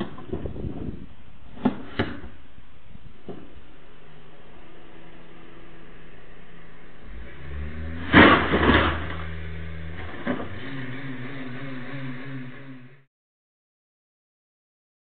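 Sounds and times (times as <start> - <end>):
wavering hum: 2.3 - 13.1
car engine revving: 3.6 - 13.1
car crash impacts: 7.5 - 10.8.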